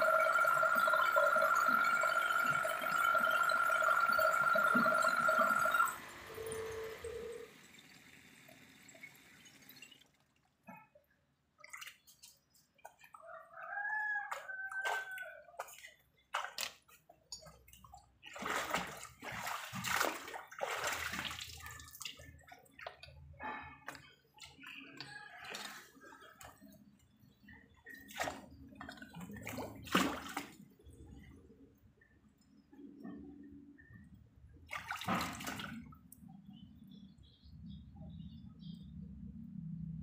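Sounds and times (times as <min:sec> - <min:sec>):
water splashing and pouring: 0:00.0 - 0:10.9, 0:14.3 - 0:31.1, 0:34.7 - 0:36.0.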